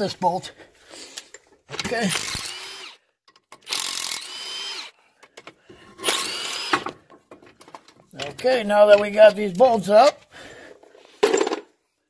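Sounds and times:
impact gun whining: 0:06.0 - 0:07.0.

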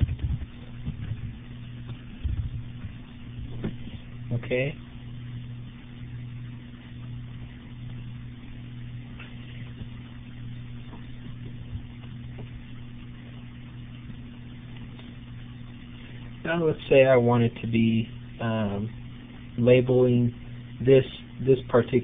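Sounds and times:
low electrical hum: 0:00.0 - 0:22.0.

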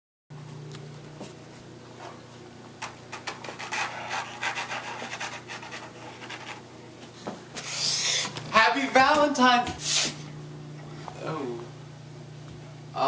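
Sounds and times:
faint steady hum: 0:00.4 - 0:13.0
scratchy drawing strokes on paper: 0:03.4 - 0:06.6.

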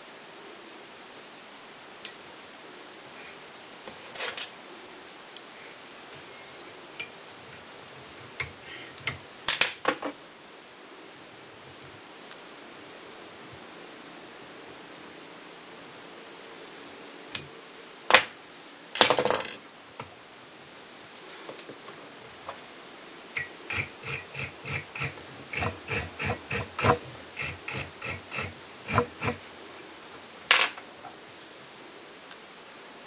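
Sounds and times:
small tools clicking: 0:08.4 - 0:09.6, 0:23.4 - 0:29.5
tools rattling: 0:23.4 - 0:29.5.

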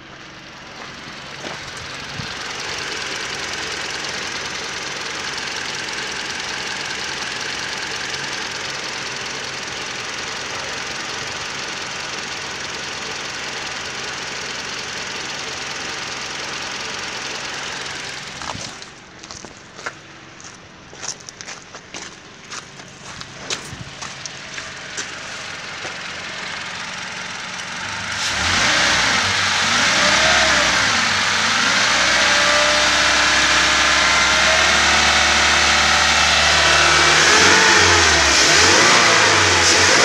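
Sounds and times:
petrol engine idling: 0:00.0 - 0:28.5.

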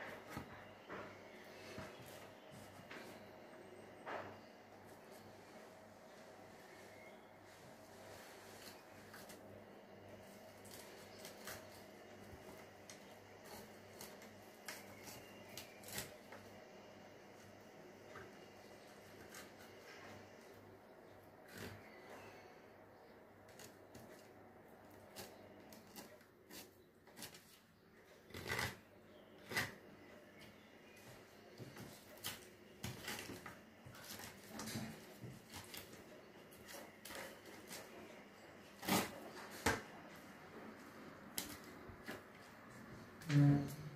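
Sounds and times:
low steady hum: 0:00.0 - 0:43.9
knife scraping fish fillet: 0:28.3 - 0:28.8.

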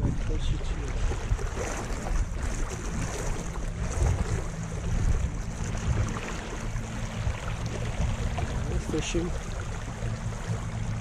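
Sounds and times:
low steady motor hum: 0:00.0 - 0:11.0
water lapping: 0:00.0 - 0:11.0
wind buffeting the microphone: 0:00.0 - 0:11.0.

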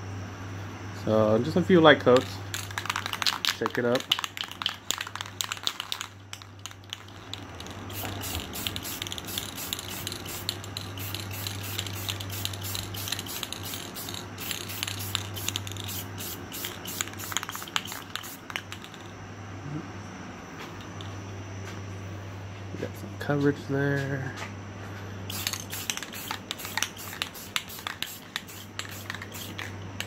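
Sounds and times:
steady low hum: 0:00.0 - 0:30.0
aerosol can rattling: 0:02.2 - 0:19.1, 0:25.3 - 0:30.0
aerosol can hissing bursts: 0:07.9 - 0:18.5, 0:25.3 - 0:29.7.

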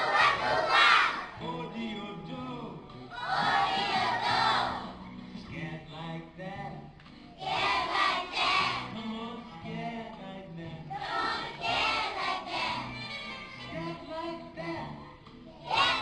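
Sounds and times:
children singing together: 0:00.0 - 0:01.4, 0:03.1 - 0:05.0, 0:07.4 - 0:09.0, 0:10.9 - 0:13.1, 0:15.5 - 0:16.0.

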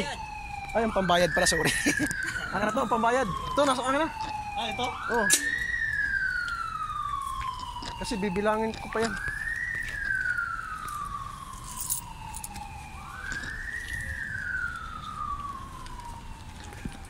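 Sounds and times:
siren wailing: 0:00.0 - 0:17.0.

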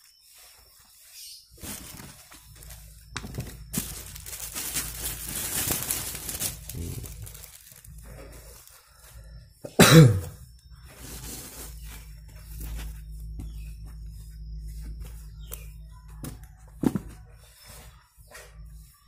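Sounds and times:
plastic bag crinkling: 0:01.5 - 0:09.2, 0:10.9 - 0:13.0
person coughing: 0:09.6 - 0:10.4.

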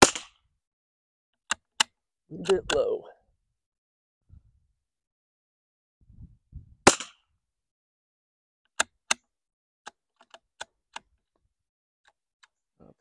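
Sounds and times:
rifle shot with echo: 0:06.8 - 0:07.1.

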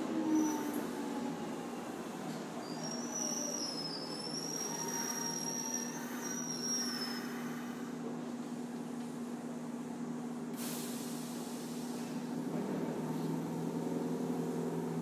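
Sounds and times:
hiss: 0:10.6 - 0:12.3.

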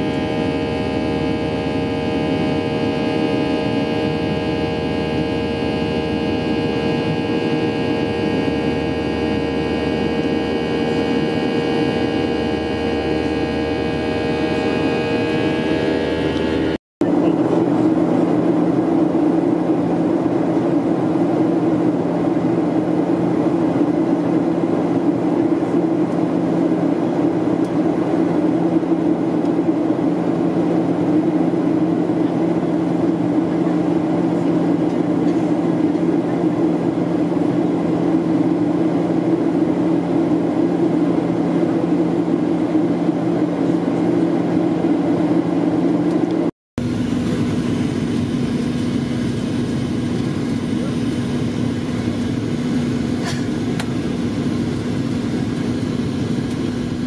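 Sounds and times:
whining tones: 0:00.0 - 0:16.8
airliner engine drone: 0:00.0 - 0:57.0.

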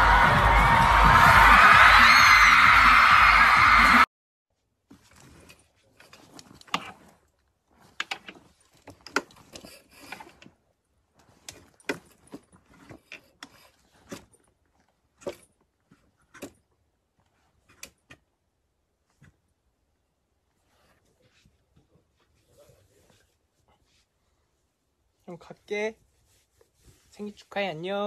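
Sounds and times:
fabric rustling: 0:04.5 - 0:17.8, 0:20.2 - 0:28.0.

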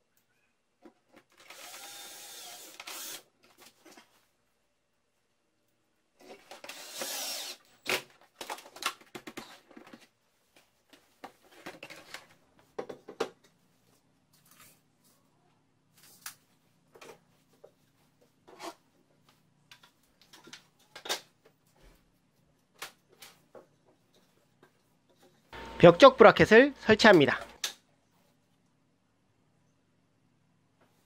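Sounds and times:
cordless drill whirring: 0:01.4 - 0:03.3, 0:06.5 - 0:07.7.

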